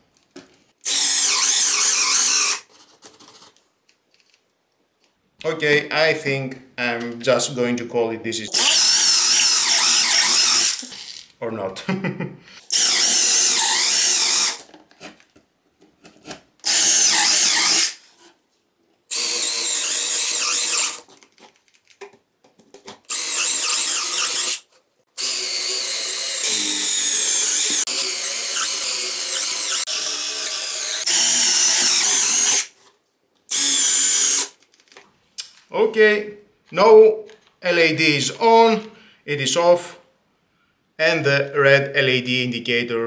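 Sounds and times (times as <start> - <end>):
cordless drill motor bursts: 0.9 - 2.6, 8.6 - 10.9, 12.7 - 14.6, 16.6 - 18.0, 19.1 - 21.0, 23.1 - 24.6, 25.2 - 32.7, 33.5 - 34.6.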